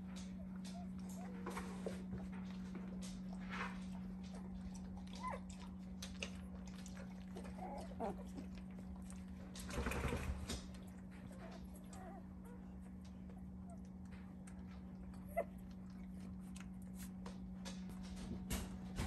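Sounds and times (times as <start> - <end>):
steady low hum: 0.0 - 19.0
puppies squeaking and whimpering: 5.1 - 5.5, 7.3 - 8.7, 11.1 - 12.9.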